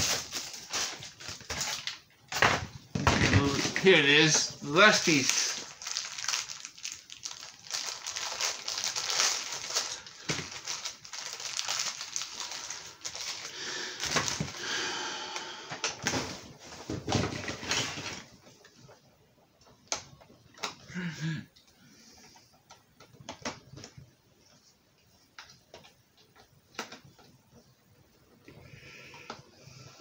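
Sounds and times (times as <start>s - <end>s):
plastic packaging crinkling: 0.0s - 2.2s, 3.2s - 14.6s.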